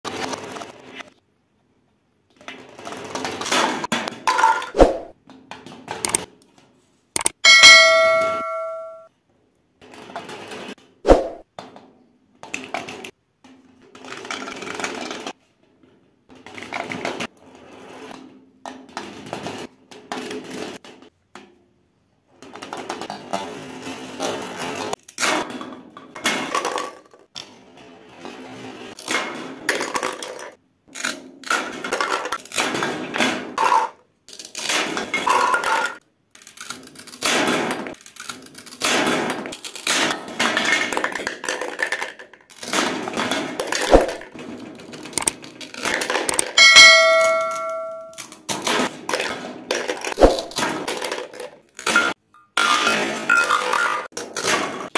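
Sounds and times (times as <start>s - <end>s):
plastic toys rattling down panel: 13.9s - 15.3s, 28.4s - 46.6s, 48.6s - 54.9s.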